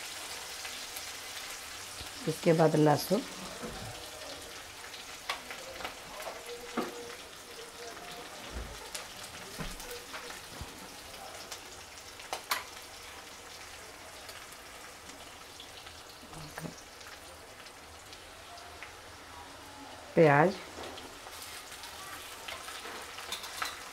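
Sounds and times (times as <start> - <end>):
spices sizzling in oil: 0.0 - 23.9
spatula scraping a pan: 20.9 - 23.9.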